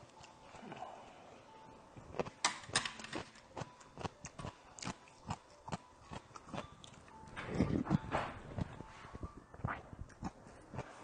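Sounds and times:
person chewing crunchy food: 0:03.2 - 0:08.8, 0:09.6 - 0:11.0.

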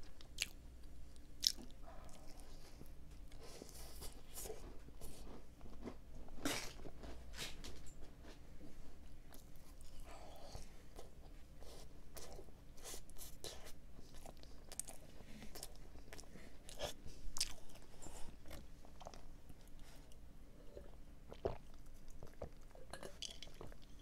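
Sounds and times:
chewing crunches: 0:01.2 - 0:02.6.

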